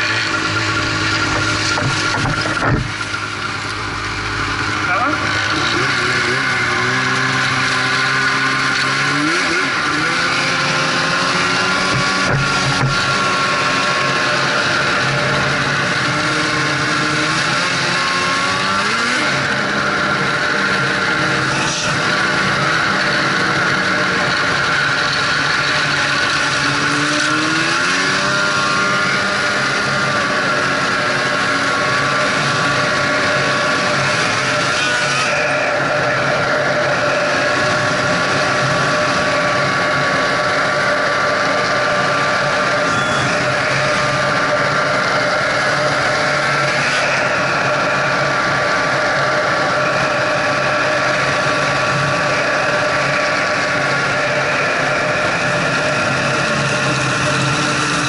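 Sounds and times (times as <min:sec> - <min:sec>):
constant rushing noise: 0:00.0 - 0:58.0
snowmobile engine running: 0:00.0 - 0:58.0
snowmobile track noise: 0:00.0 - 0:58.0.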